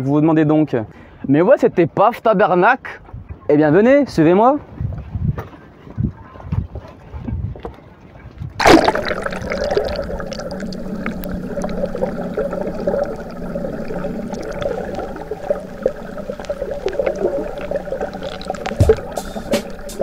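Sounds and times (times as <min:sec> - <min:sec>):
muffled underwater bubbling: 0:08.6 - 0:20.0
splash into water: 0:08.6 - 0:20.0.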